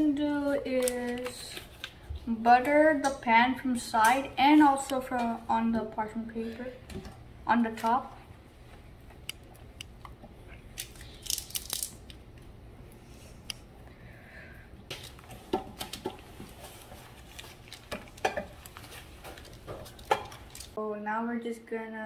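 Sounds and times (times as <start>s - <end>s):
butter wrapper rustling on paper: 14.9s - 20.8s.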